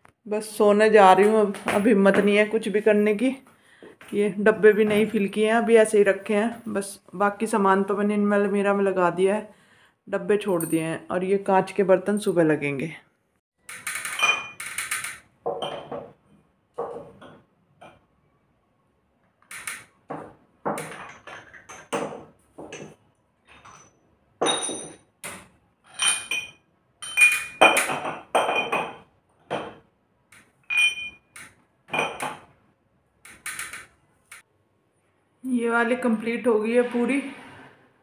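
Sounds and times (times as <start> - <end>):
glassware and crockery clinking: 14.1 - 14.6, 15.5 - 16.1, 22.7 - 25.0, 25.9 - 29.0, 30.7 - 32.4.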